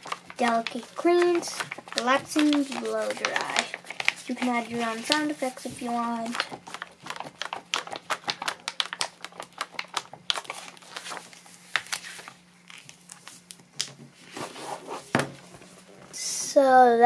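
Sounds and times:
book pages flapping and rustling: 0:00.0 - 0:16.2
book thump: 0:15.1 - 0:15.4.

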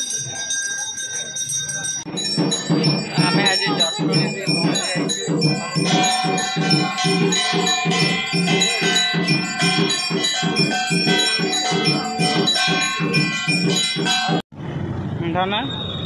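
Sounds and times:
bells ringing: 0:00.0 - 0:14.5
fast drumbeat: 0:02.0 - 0:14.4.

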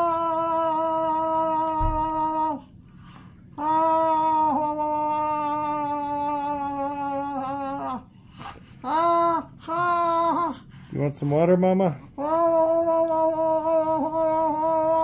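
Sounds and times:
elderly woman moaning: 0:00.0 - 0:02.7, 0:03.6 - 0:10.8, 0:12.1 - 0:15.0
breath: 0:02.8 - 0:03.5.

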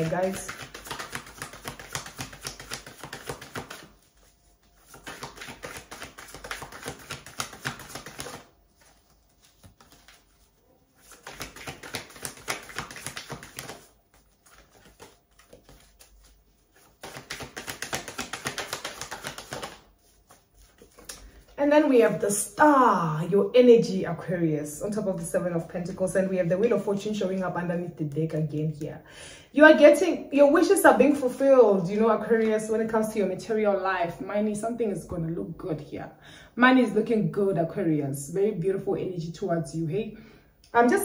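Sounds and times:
cards being shuffled: 0:00.0 - 0:21.5.

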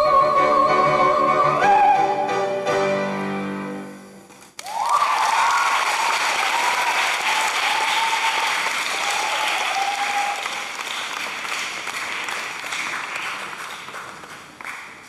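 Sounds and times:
high cheers: 0:04.6 - 0:10.9
audience applause: 0:04.6 - 0:15.0.

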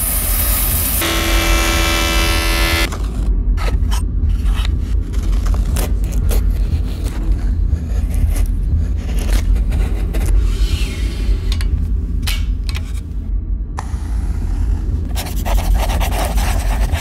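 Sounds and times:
steady low rumble: 0:00.1 - 0:17.0
band saw cutting wood: 0:00.9 - 0:02.9.

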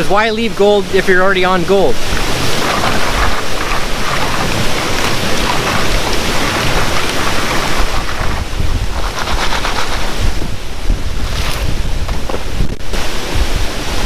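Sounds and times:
creek water rushing: 0:00.0 - 0:14.0
gold pan splashing water: 0:02.0 - 0:08.5.

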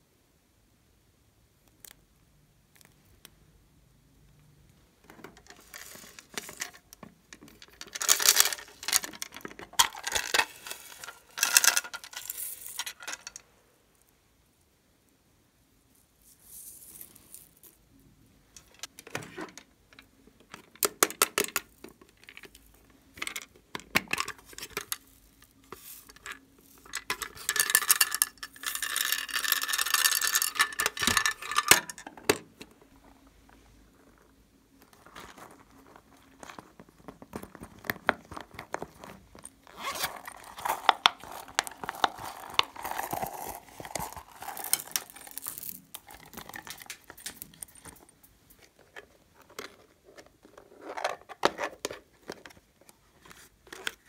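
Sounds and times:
plastic cases clicking and scraping: 0:05.0 - 0:13.4, 0:18.6 - 0:32.8, 0:34.8 - 0:54.0.

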